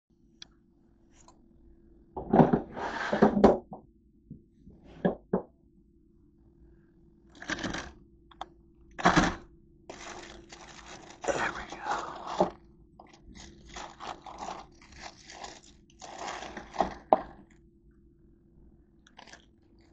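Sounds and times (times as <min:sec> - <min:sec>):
plastic cooler scraping and knocking: 0:02.2 - 0:03.7.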